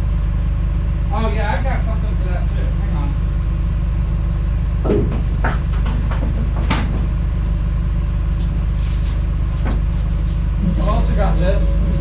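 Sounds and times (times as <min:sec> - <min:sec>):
truck engine running: 0:00.0 - 0:12.0
metal knocks and clanks: 0:04.8 - 0:07.1.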